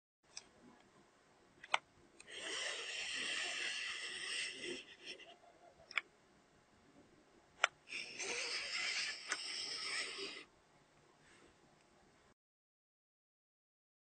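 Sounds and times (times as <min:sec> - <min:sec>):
device scraping over paper: 0:02.3 - 0:05.1.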